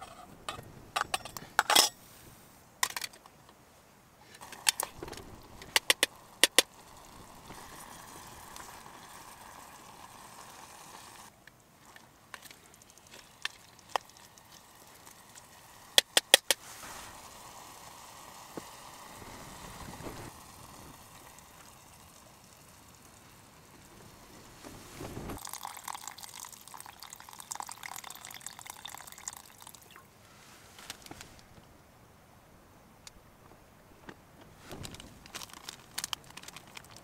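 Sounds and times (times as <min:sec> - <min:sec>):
liquid pouring into a pot: 0:25.4 - 0:30.0.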